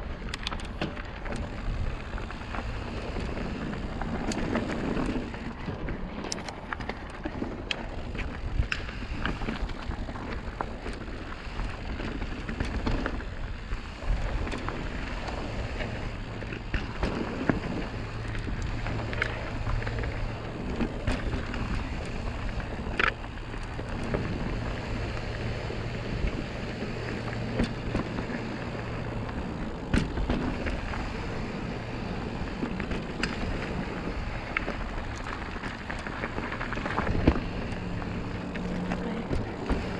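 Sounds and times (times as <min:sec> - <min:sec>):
bike knocking and rattling: 0:00.0 - 0:39.9
bike tyres on dirt: 0:00.0 - 0:39.9
low steady hum: 0:00.0 - 0:39.9.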